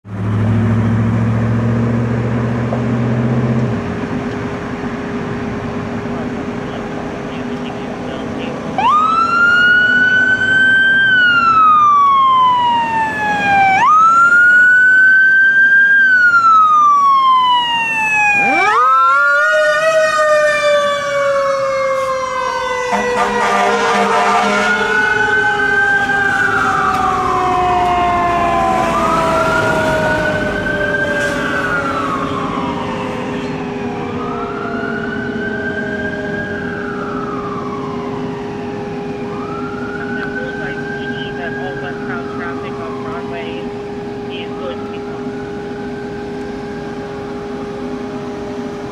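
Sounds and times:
fire truck siren wailing: 3.6 - 48.9.

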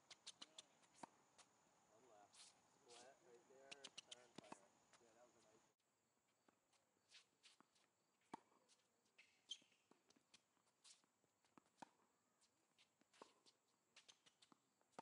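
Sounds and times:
tennis ball bouncing: 0.1 - 1.2, 3.7 - 4.6, 7.5 - 10.4, 11.5 - 12.1.

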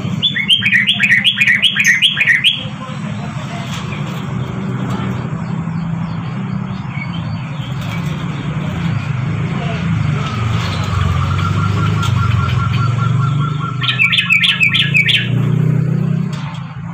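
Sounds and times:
bird singing bubbling notes: 0.1 - 2.7, 10.9 - 15.4.

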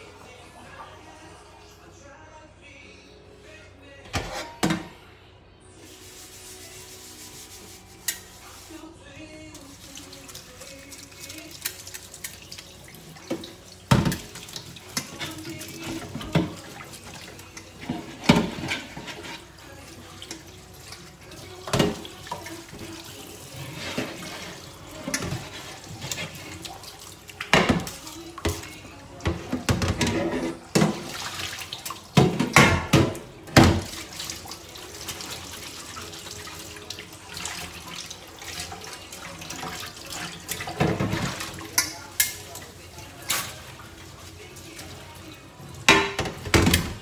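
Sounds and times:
dishes clattering in sink: 4.1 - 5.0, 13.2 - 19.5, 21.4 - 26.8, 27.4 - 34.2, 39.4 - 43.8, 45.8 - 47.0
cloth scrubbing baking tray: 5.8 - 9.0, 14.1 - 20.4, 21.3 - 26.9
tap water running into sink: 9.6 - 19.4, 20.0 - 44.0.

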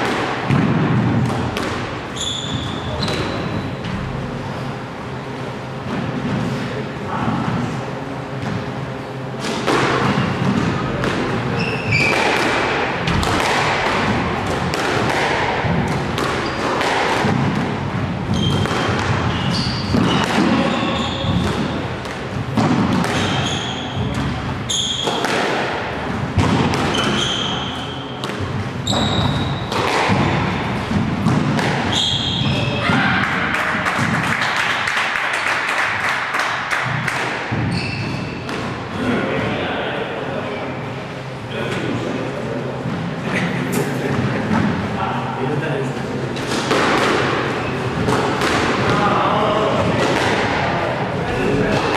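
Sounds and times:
shoes squeaking on court floor: 2.1 - 3.9, 11.5 - 12.4, 16.3 - 16.8, 18.3 - 21.8, 23.0 - 25.3, 26.6 - 29.8, 31.9 - 32.9, 37.6 - 38.5
squash ball cracks: 9.4 - 17.8, 29.6 - 32.0, 46.4 - 49.0.

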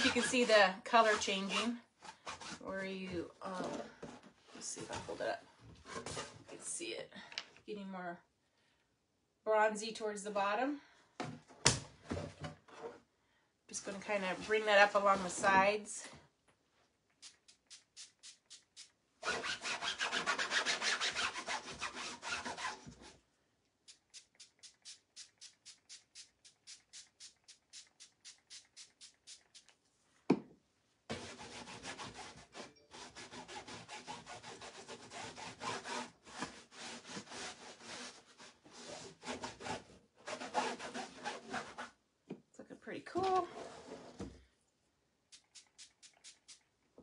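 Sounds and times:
rag rubbing on burlap: 0.0 - 1.7, 24.0 - 29.7.

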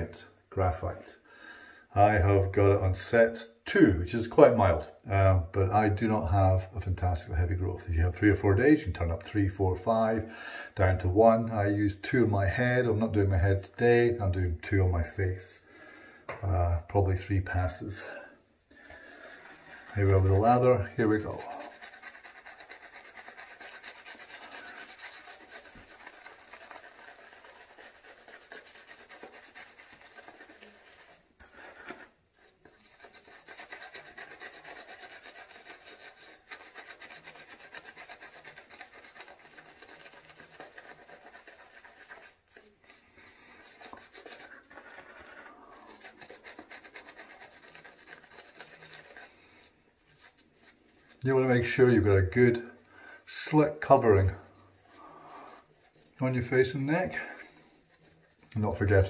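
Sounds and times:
shaving brush rubbing on stubble: 11.0 - 15.7, 16.6 - 59.0.

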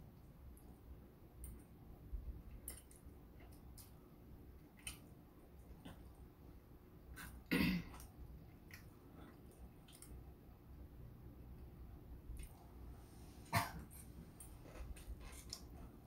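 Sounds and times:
noodles being chewed: 2.4 - 6.3, 7.1 - 10.3, 14.4 - 15.9
person clearing throat: 7.2 - 8.0, 13.5 - 14.0.

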